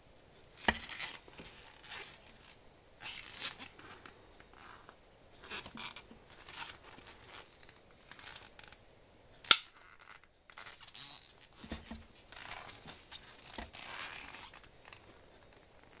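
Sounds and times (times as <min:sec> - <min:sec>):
gloves rubbing against reel: 0:12.3 - 0:15.1.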